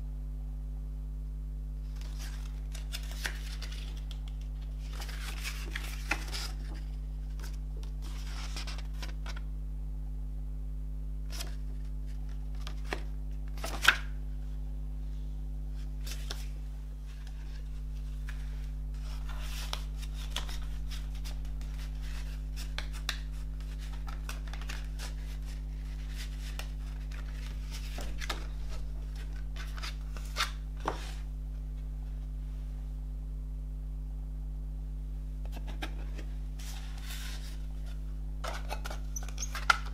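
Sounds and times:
steady low hum: 0.0s - 39.9s
paper rustling: 1.9s - 9.4s, 17.1s - 31.3s, 35.5s - 39.9s.

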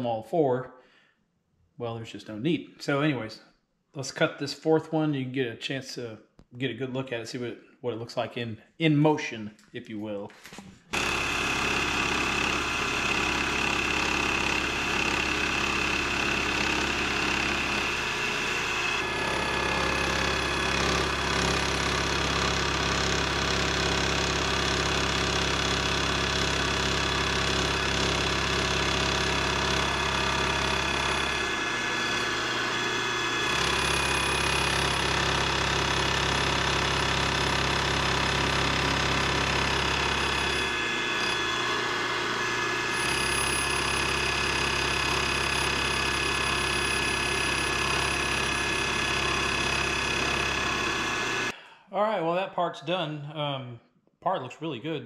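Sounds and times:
end mill cutting metal: 10.9s - 51.5s
milling machine spindle running: 10.9s - 51.5s.

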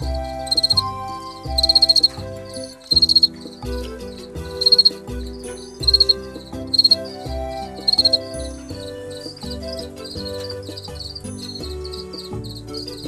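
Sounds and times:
background music with chords and bass: 0.0s - 13.0s
crickets chirping: 0.4s - 3.5s, 4.6s - 5.0s, 5.8s - 7.1s, 7.9s - 8.2s, 10.4s - 12.9s.

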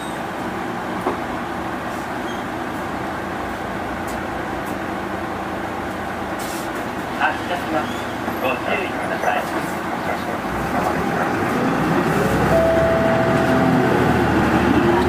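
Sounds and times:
bus diesel engine running: 0.0s - 15.0s.

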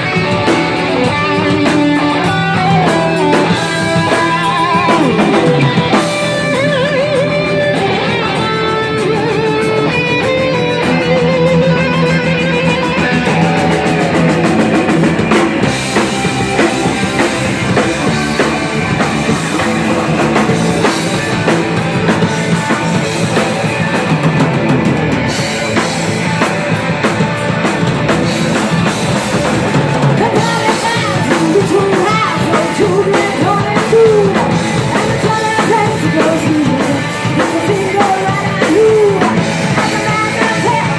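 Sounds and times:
live heavy metal band: 0.0s - 40.9s
person singing: 1.7s - 8.4s, 30.0s - 40.9s.

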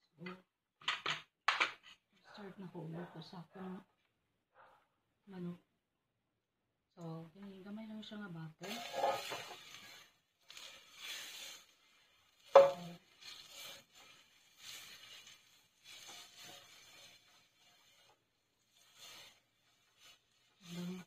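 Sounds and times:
hot liquid sloshing and hissing in pan: 8.6s - 21.0s.

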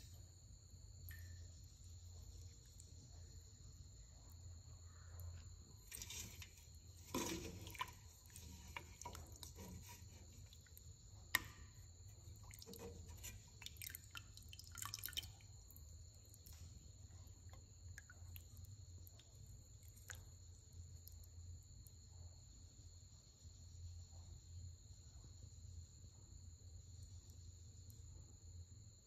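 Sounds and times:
thick liquid slopping and dripping: 1.0s - 22.0s.

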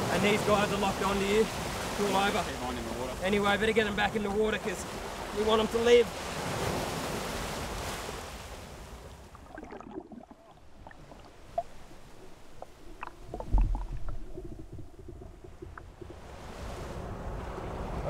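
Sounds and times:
surf washing: 0.0s - 18.0s
seawater sloshing and gurgling: 9.2s - 17.2s
muffled underwater clicks: 9.4s - 16.3s.

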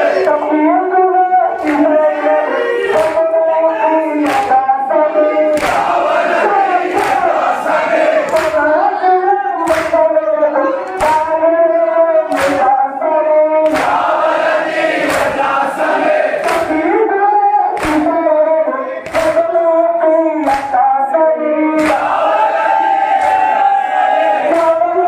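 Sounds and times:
men chanting in unison: 0.0s - 25.0s
hands slapping chests: 2.9s - 3.3s, 4.2s - 4.6s, 5.5s - 8.6s, 9.6s - 10.0s, 10.9s - 11.3s, 12.3s - 12.7s, 13.6s - 16.9s, 17.7s - 18.2s, 19.0s - 19.5s, 20.4s - 20.8s, 21.8s - 22.4s, 23.0s - 23.7s, 24.4s - 24.8s.

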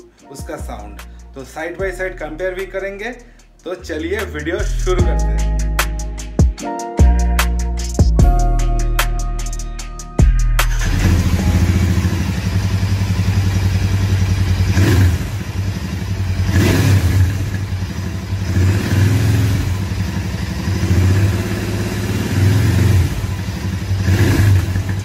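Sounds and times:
motorcycle engine idling and revving: 10.2s - 25.0s.

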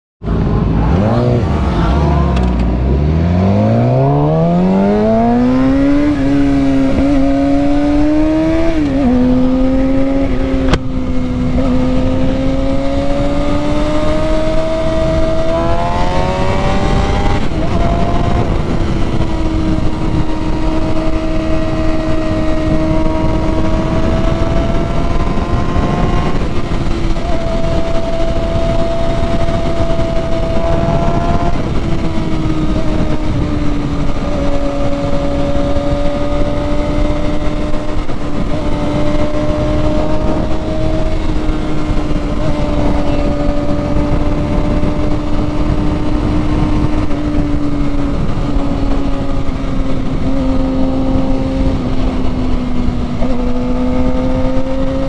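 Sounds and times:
motorcycle engine revving: 0.2s - 55.0s
wind rushing: 0.2s - 55.0s.

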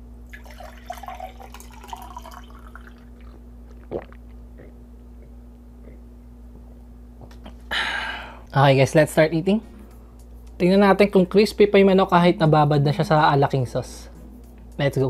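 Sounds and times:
steady low hum: 0.0s - 15.0s
water pouring into glass: 0.3s - 3.3s
person drinking: 0.4s - 6.1s.

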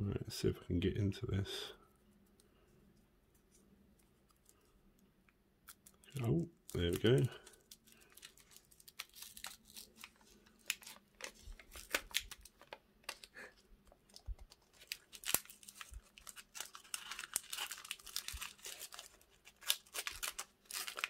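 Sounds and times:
paper wrapper crinkling and tearing: 5.6s - 21.0s.

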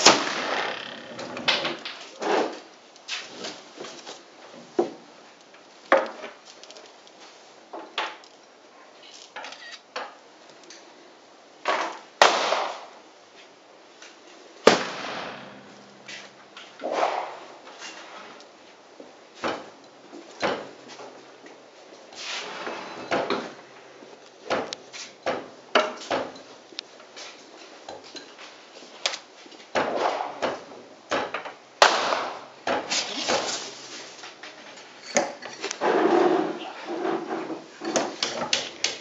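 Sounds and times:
model cannons firing: 0.0s - 0.9s, 12.2s - 12.9s, 14.6s - 15.8s, 31.8s - 32.4s.

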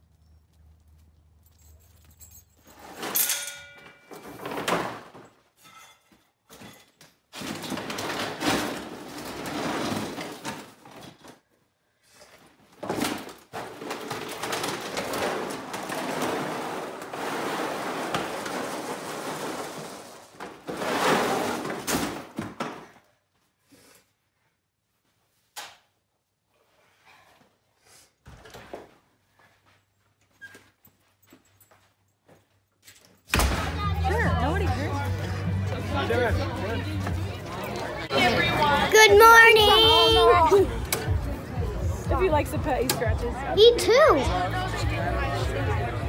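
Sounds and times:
rustling and rattling of objects: 0.0s - 24.0s.

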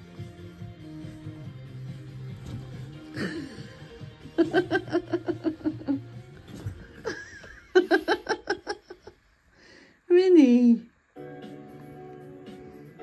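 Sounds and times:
quiet background music: 0.0s - 9.1s, 10.1s - 13.0s
woman laughing: 3.1s - 6.1s, 7.0s - 9.2s.

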